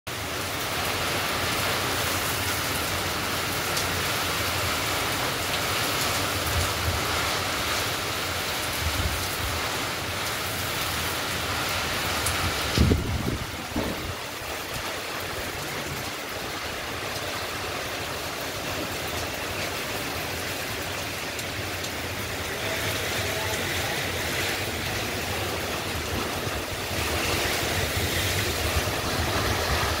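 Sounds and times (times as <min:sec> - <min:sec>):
heavy rain hiss: 0:00.1 - 0:30.0
wind gusts rumbling: 0:10.5 - 0:19.3, 0:24.6 - 0:30.0.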